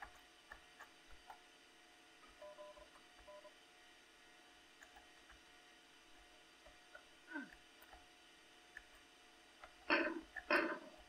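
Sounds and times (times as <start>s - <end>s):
faint clicks: 4.8s - 5.5s.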